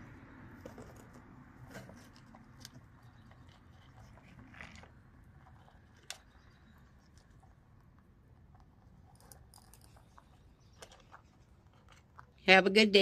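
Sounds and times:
rabbits chewing dry pellets: 0.0s - 12.5s.

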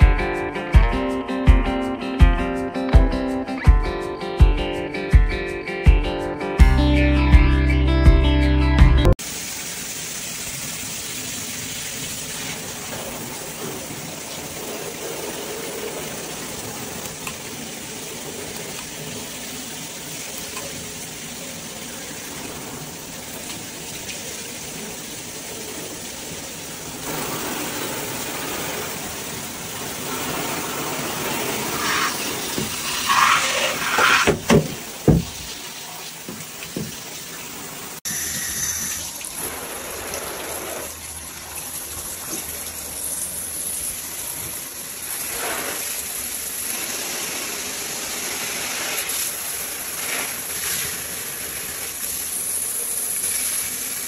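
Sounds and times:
shower water spraying: 9.2s - 54.0s
loud bumps: 33.8s - 35.6s.

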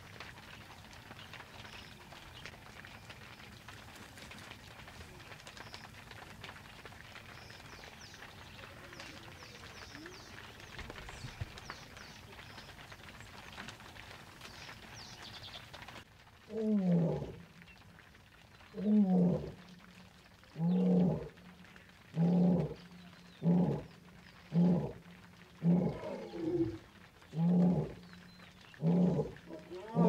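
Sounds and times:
lions roaring: 16.5s - 17.4s, 18.8s - 19.7s, 20.5s - 21.4s, 22.1s - 28.1s, 28.7s - 30.0s.

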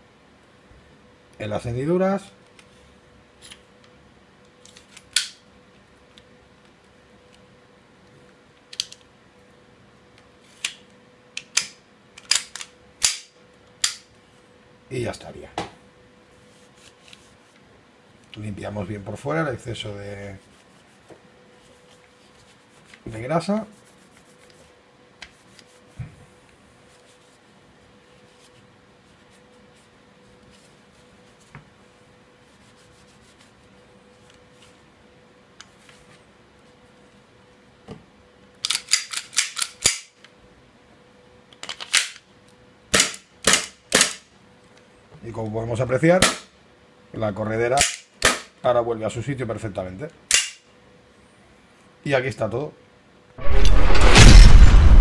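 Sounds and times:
pistol parts clicking together: 11.4s - 14.0s, 38.6s - 40.2s, 41.5s - 42.3s, 47.8s - 48.3s, 50.3s - 50.6s
cloth rubbing on pistol: 16.3s - 17.6s, 20.0s - 26.0s, 26.8s - 31.5s, 32.4s - 34.8s.

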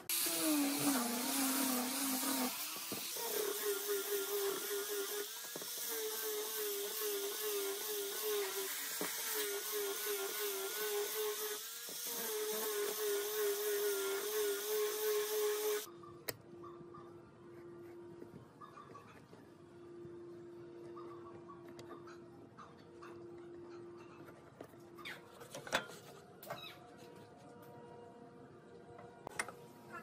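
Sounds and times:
angle grinder sanding wood: 0.0s - 15.9s.

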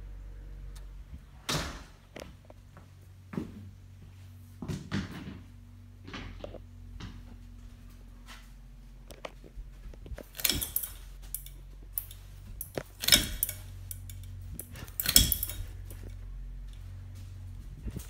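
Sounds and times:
ceiling fan motor hum: 0.0s - 18.0s
sharp metallic rattles: 10.1s - 16.2s.

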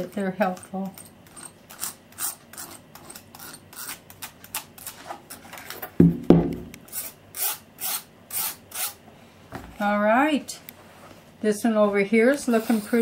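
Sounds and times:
tool scratching plaster: 0.1s - 4.0s, 12.5s - 13.0s
dull thumps: 6.0s - 6.8s.

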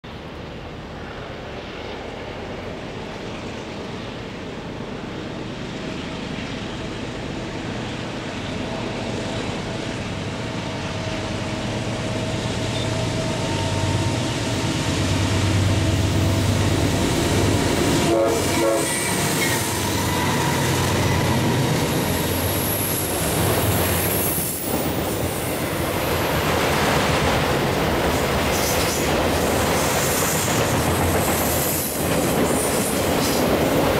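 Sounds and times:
diesel locomotive engine drone: 0.0s - 33.9s
train wheels clattering on rails: 5.8s - 33.9s.

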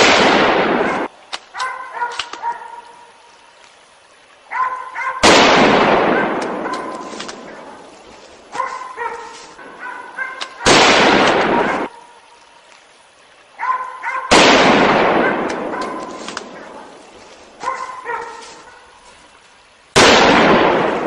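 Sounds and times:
rifle shots echoing: 0.0s - 1.1s, 5.2s - 7.7s, 10.6s - 11.9s, 14.3s - 16.8s, 20.0s - 21.0s.

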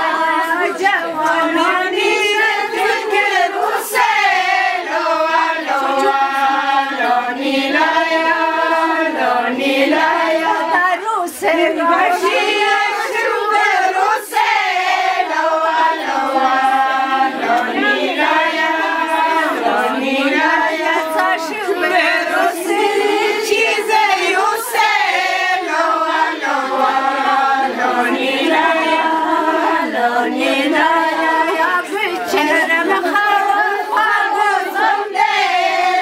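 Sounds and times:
women singing unaccompanied: 0.0s - 36.0s.

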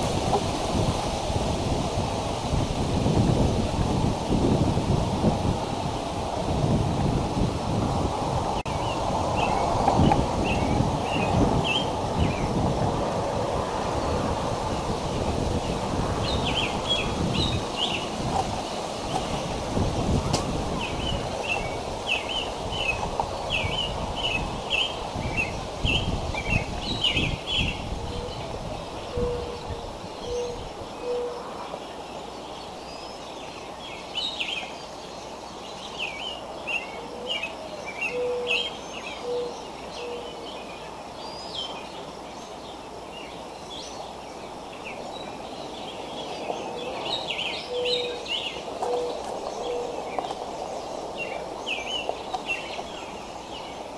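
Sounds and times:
songbirds chirping: 8.3s - 53.9s
dove cooing: 29.1s - 31.4s, 37.0s - 40.5s, 46.6s - 50.4s.

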